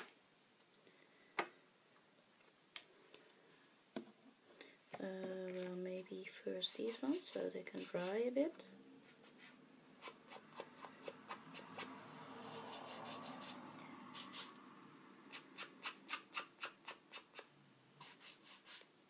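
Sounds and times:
paper scraping on ink pad: 9.0 - 14.6, 15.3 - 18.9.

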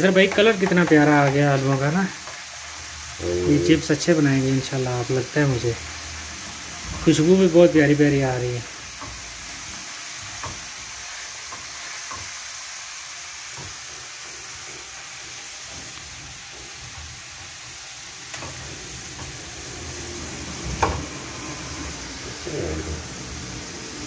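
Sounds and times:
potatoes sizzling in hot oil: 0.0 - 24.0
knock on pan: 0.2 - 1.9.

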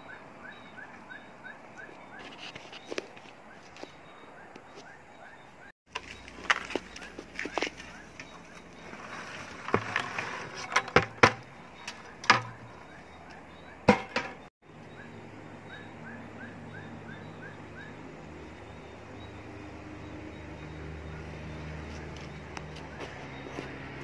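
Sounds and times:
bucket knocking against pot: 9.6 - 12.7, 13.9 - 14.4.

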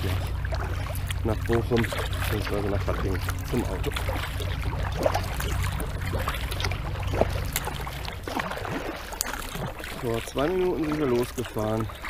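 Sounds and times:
paddle splashing water: 0.0 - 12.0
water dripping: 0.0 - 12.0.

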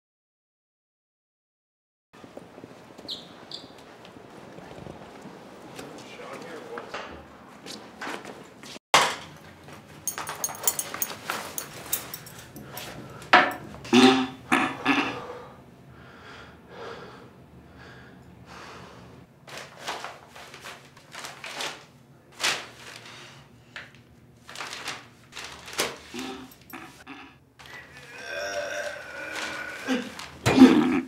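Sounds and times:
rustling: 24.4 - 27.0.

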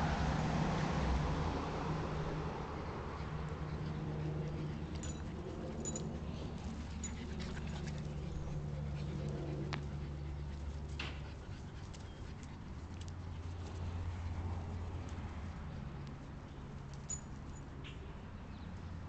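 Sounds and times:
dogs play-fighting: 2.3 - 16.0.

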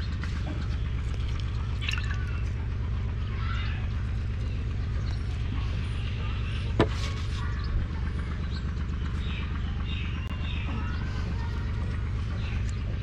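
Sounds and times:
low mechanical hum: 0.0 - 13.0
juice dripping into water: 1.1 - 2.5.

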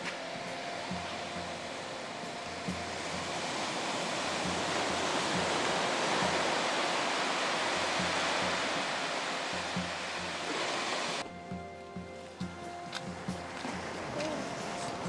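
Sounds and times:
surf washing onto a beach: 0.0 - 11.2.

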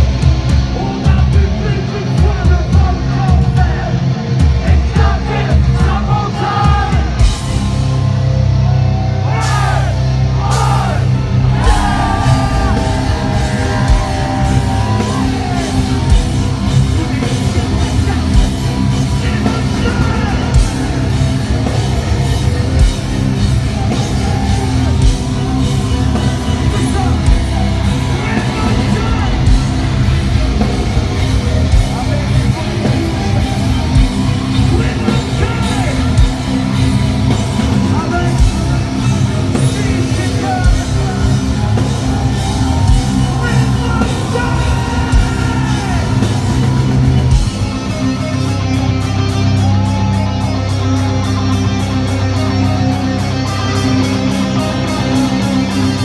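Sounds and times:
heavy metal band playing live: 0.0 - 56.0
person singing and yelling: 9.3 - 21.7, 32.4 - 36.3, 37.7 - 48.2.

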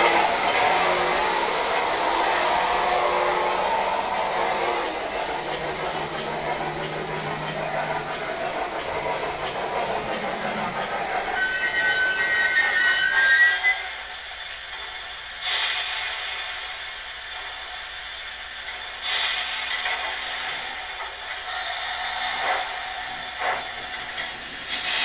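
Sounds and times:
steam locomotive chime whistle: 0.0 - 15.8
model train rumbling and clattering: 0.0 - 25.0.

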